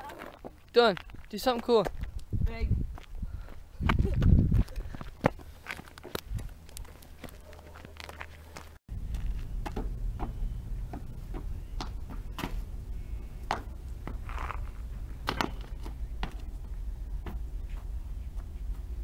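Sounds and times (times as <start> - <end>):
wind rumble on microphone: 1.9 - 5.2.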